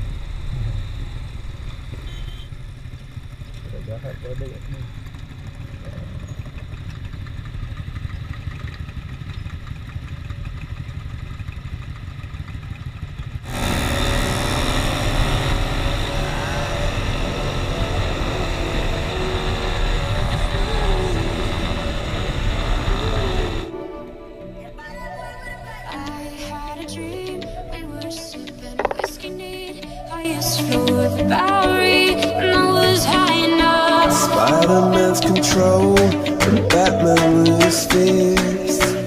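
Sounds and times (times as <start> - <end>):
motorcycle engine rumbling: 0.0 - 23.8, 28.6 - 29.4.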